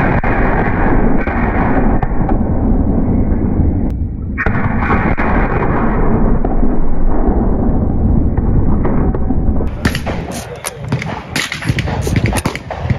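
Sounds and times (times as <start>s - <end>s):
cannon blast rumbling: 0.0s - 12.9s
sharp cannon report: 0.0s - 12.9s.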